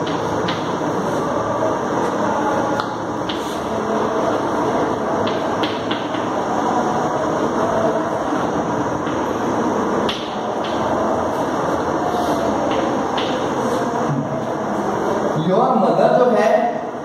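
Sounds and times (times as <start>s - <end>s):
steady background hiss: 0.0s - 17.0s
chalk tapping and scraping on blackboard: 2.8s - 3.7s, 5.2s - 6.3s, 12.1s - 13.8s.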